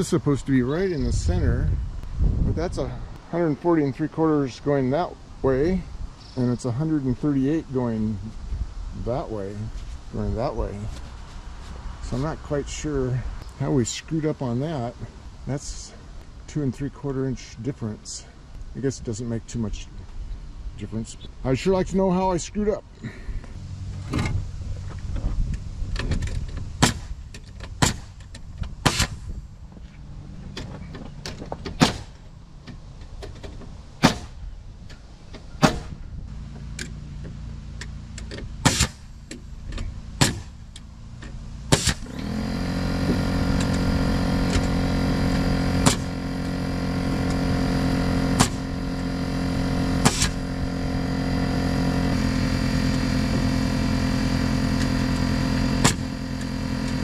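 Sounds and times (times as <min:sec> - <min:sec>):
low engine hum: 0:00.0 - 0:57.0
sharp knocks: 0:33.2 - 0:34.4, 0:35.6 - 0:36.0, 0:40.2 - 0:40.6, 0:45.8 - 0:46.2
motor running steadily: 0:35.5 - 0:57.0.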